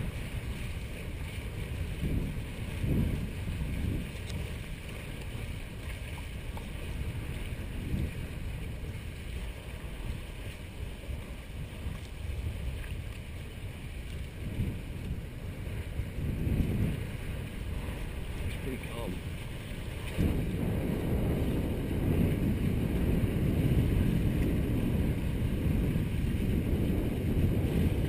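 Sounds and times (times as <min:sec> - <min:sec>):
water rushing along hulls: 0:00.0 - 0:28.0
wind buffeting microphone: 0:00.0 - 0:28.0.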